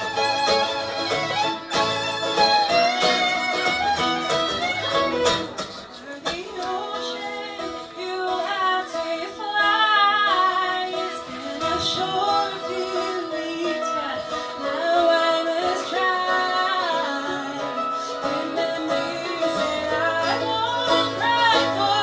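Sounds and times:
acoustic guitar: 0.0s - 22.0s
fiddle: 0.0s - 22.0s
person singing: 5.7s - 22.0s.

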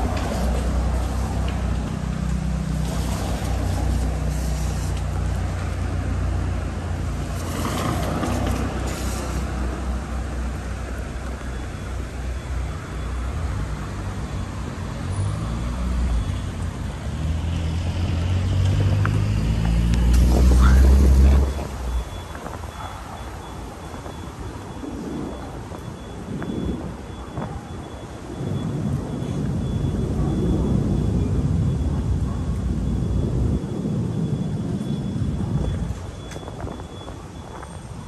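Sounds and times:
cars passing on wet road: 0.0s - 38.0s.

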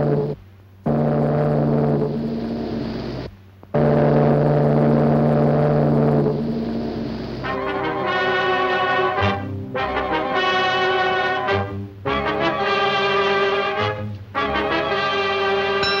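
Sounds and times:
ship steam whistle blasts: 15.8s - 16.0s.

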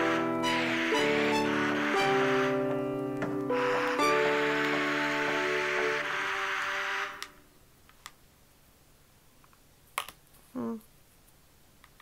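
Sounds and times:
background music: 0.0s - 7.4s.

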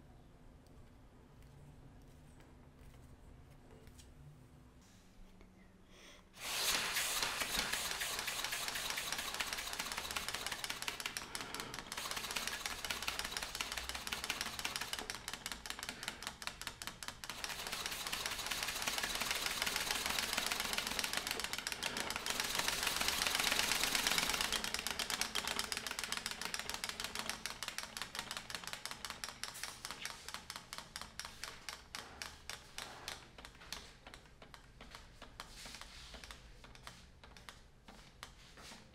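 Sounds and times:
small engine mechanical clatter: 6.4s - 38.4s.

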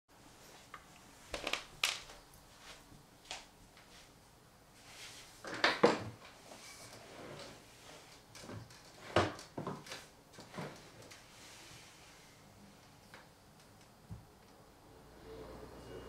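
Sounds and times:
office chair knocks and rustling: 8.4s - 10.9s.

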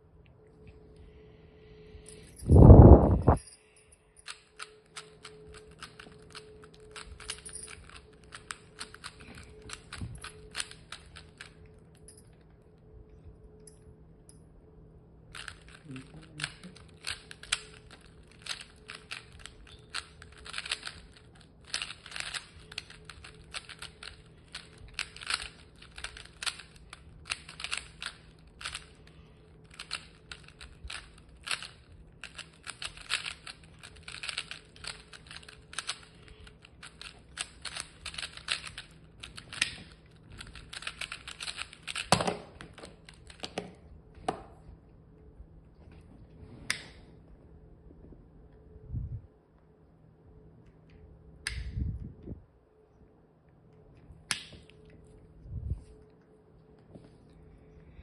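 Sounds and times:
puzzle cube clicking rapidly: 4.3s - 11.6s, 15.3s - 43.6s.

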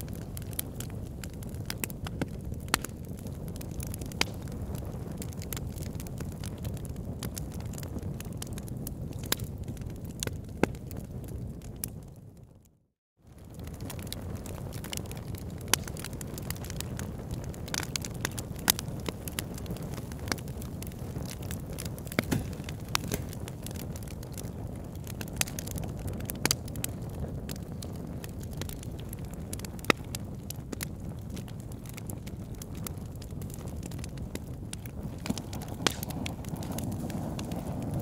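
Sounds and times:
wood fire crackling: 0.0s - 12.7s, 13.3s - 38.0s
sharp pops and snaps: 22.0s - 23.4s, 35.2s - 37.6s.

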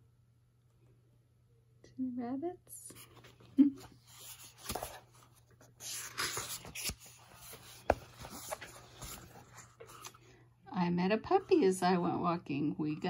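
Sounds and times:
book pages rustling: 2.9s - 10.3s.

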